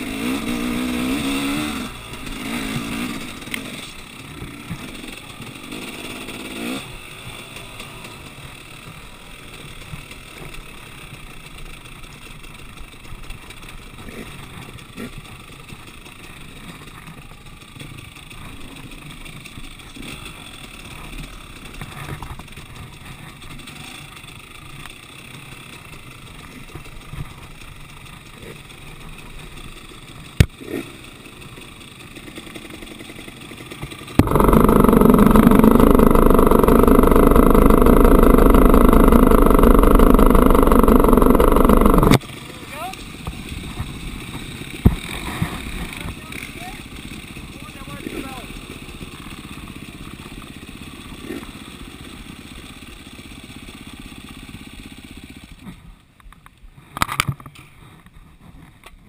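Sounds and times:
dirt bike engine revving: 0.0s - 10.5s, 34.0s - 42.2s.

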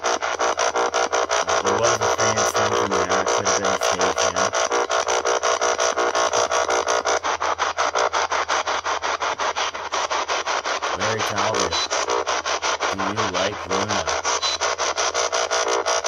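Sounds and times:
choppy radio static pulses: 0.0s - 16.0s
voice-like fragments: 1.4s - 4.6s, 10.9s - 12.0s, 12.9s - 14.4s.

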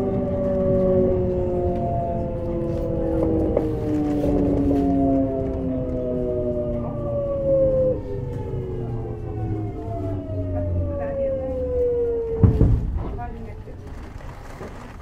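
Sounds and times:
train motor whine: 0.0s - 13.0s
train running gear rumble: 0.0s - 15.0s
heavy thud: 12.4s - 13.4s.

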